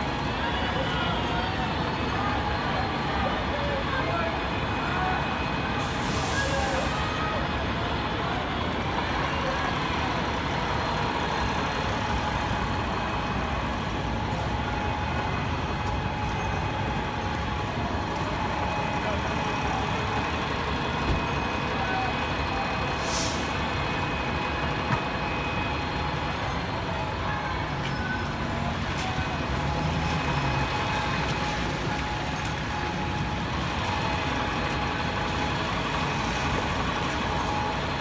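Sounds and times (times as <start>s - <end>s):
bus engine running: 0.0s - 38.0s
tyres hissing on wet road: 4.2s - 14.1s, 21.5s - 24.7s, 27.6s - 38.0s.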